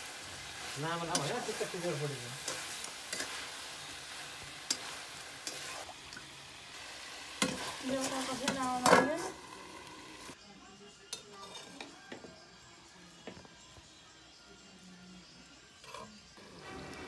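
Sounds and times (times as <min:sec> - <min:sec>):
curry sizzling in a pan: 0:00.0 - 0:10.4, 0:15.8 - 0:17.0
spoon scraping and tapping pan: 0:07.4 - 0:09.3.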